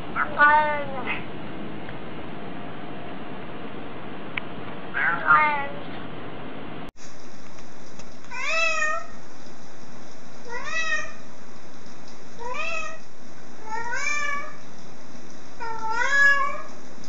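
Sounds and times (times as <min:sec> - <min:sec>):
cat meowing: 0:00.2 - 0:01.2, 0:05.0 - 0:05.8, 0:08.3 - 0:09.2, 0:10.5 - 0:11.3, 0:12.4 - 0:13.0, 0:13.6 - 0:14.6, 0:15.6 - 0:16.8.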